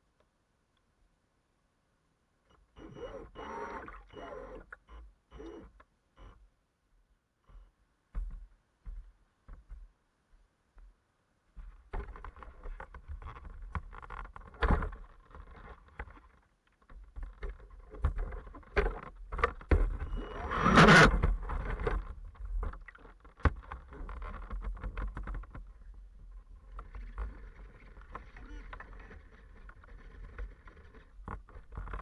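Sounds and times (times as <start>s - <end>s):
water splashing and sloshing: 21.1s - 32.0s.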